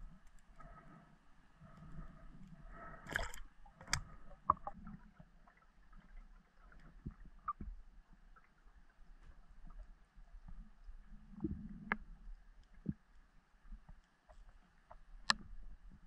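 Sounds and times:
faint steady hum: 0:00.0 - 0:16.0
underwater knocks and clicks: 0:03.0 - 0:08.5, 0:10.4 - 0:13.1.

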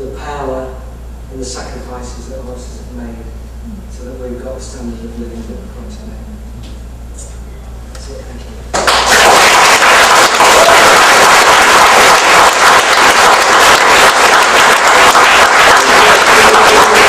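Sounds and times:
audience applauding: 0:08.8 - 0:17.0.

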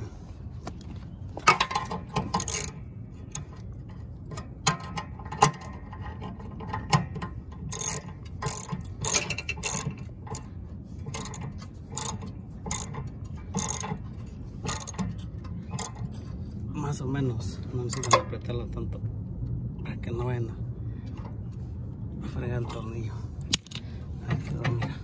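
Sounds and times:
ratchet wrench clicking: 0:01.7 - 0:03.6, 0:07.7 - 0:16.1, 0:17.9 - 0:18.2.

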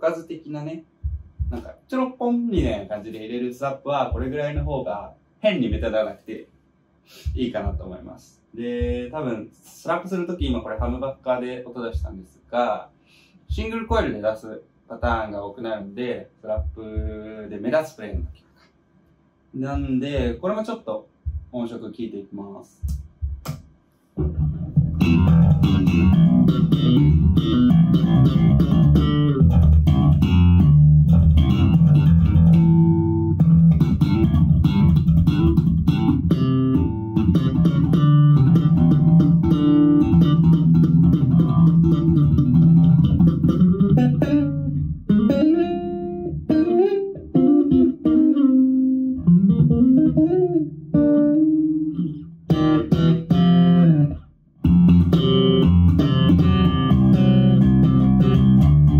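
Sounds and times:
slap bass guitar: 0:01.0 - 0:01.8, 0:04.0 - 0:04.9, 0:24.2 - 0:58.9.

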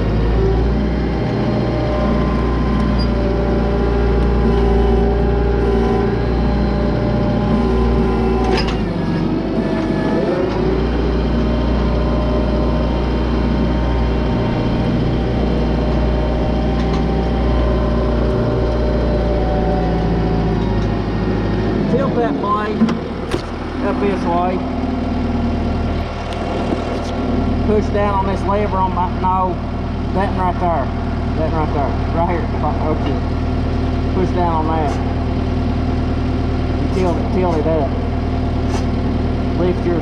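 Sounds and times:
tractor diesel engine running: 0:00.0 - 0:40.0
metal clank: 0:08.2 - 0:10.6.

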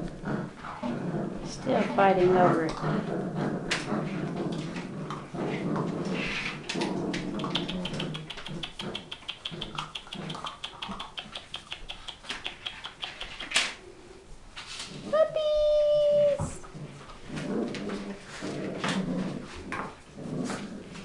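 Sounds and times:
puppies scuffling and grumbling: 0:00.0 - 0:21.0
claws clicking on tiles: 0:06.4 - 0:13.8.

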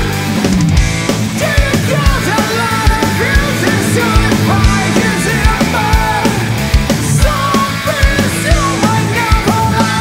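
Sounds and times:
distorted electric guitars: 0:00.0 - 0:10.0
person singing: 0:02.2 - 0:08.1.

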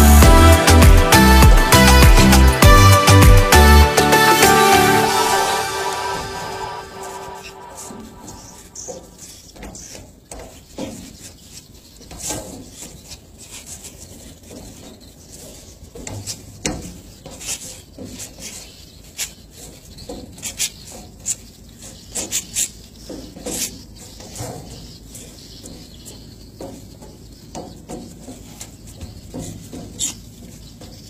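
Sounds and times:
footsteps scuffing on deck: 0:07.6 - 0:31.0.

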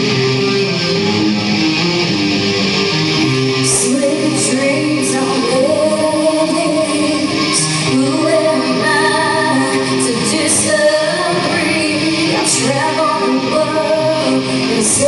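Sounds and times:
rock band playing: 0:00.0 - 0:15.0
person singing: 0:03.3 - 0:15.0.

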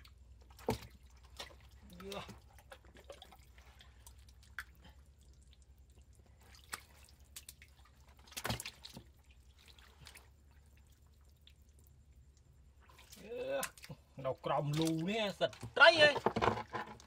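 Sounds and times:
wet splash: 0:00.0 - 0:12.0, 0:12.7 - 0:15.9
hands squelching in mud: 0:06.3 - 0:10.6.

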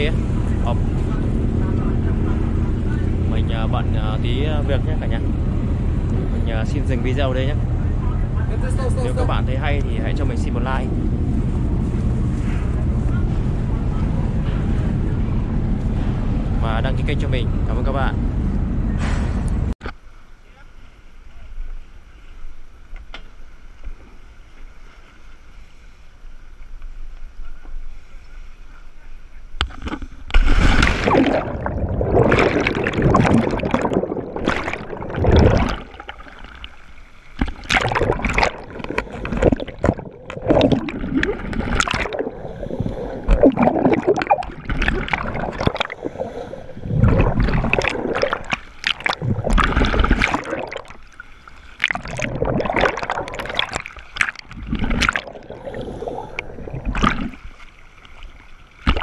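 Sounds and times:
water sloshing and splashing: 0:29.7 - 0:59.0.

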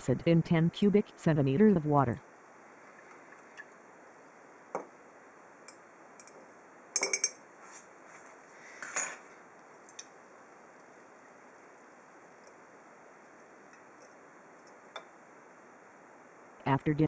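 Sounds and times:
glass cylinder clinking on tile: 0:07.0 - 0:07.4.

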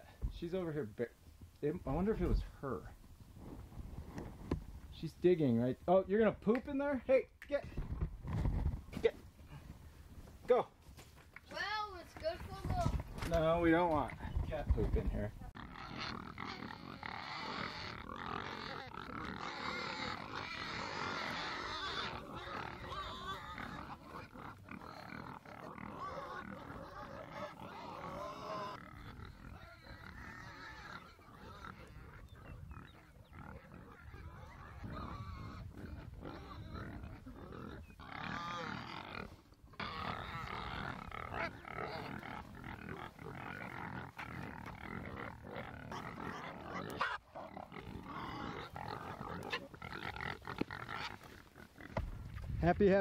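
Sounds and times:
pigs grunting: 0:12.3 - 0:53.0.

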